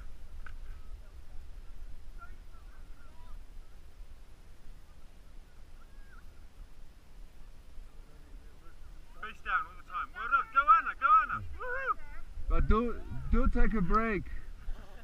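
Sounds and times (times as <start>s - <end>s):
faint distant high calls: 2.1s - 13.4s
wind buffeting microphone: 11.4s - 15.0s.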